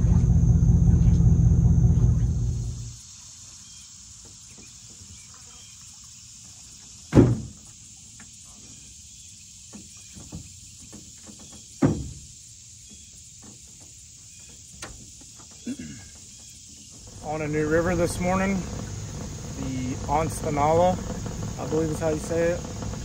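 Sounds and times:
insects buzzing: 0.0 - 23.0.

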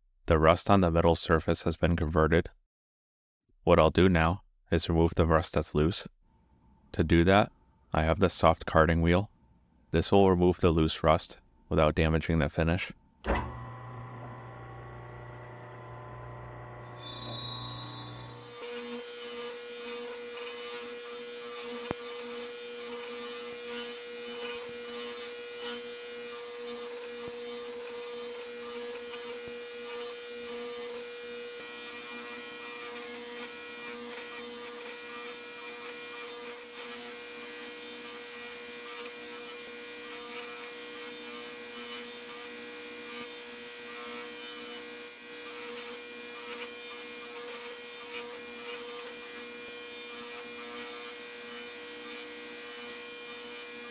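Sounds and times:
electric bench motor humming: 13.3 - 39.1.

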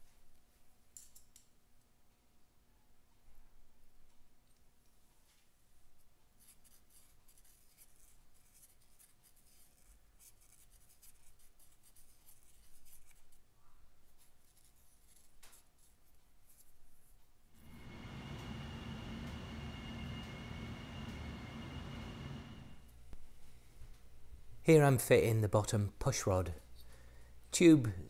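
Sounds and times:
cotton swab scratchy rubbing: 6.4 - 13.5, 14.1 - 17.1.

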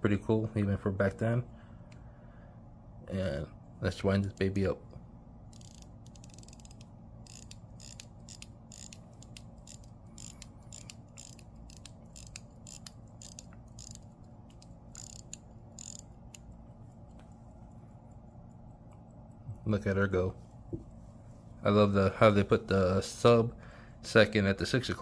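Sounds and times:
watch winding ratchet clicks: 5.5 - 17.2.

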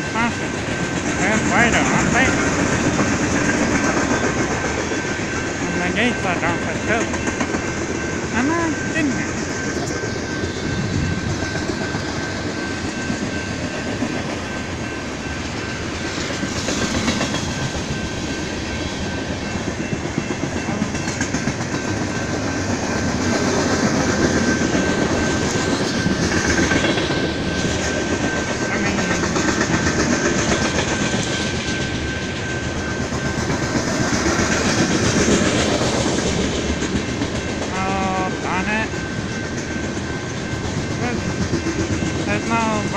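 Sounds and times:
train wheels clattering: 0.0 - 37.8
high-pitched tone: 4.2 - 16.0, 27.4 - 29.4, 37.7 - 39.3.

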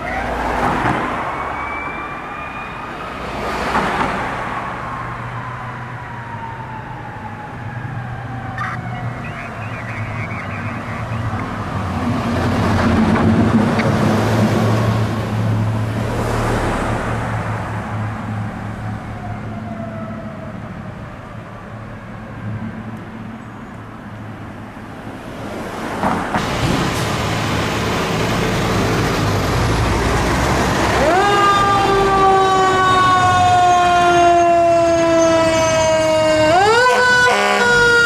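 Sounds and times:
siren wailing: 0.0 - 3.2, 5.1 - 11.6, 17.8 - 21.0, 30.8 - 38.0
street traffic: 0.0 - 38.0
fire truck engine droning: 4.2 - 38.0.

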